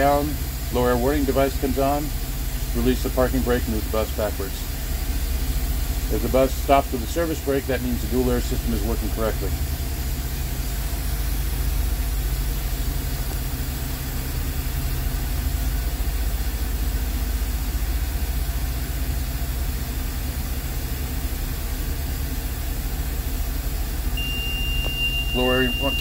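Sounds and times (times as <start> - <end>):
bus engine idling: 0.0 - 26.0
high-pitched warning buzzer: 24.2 - 26.0.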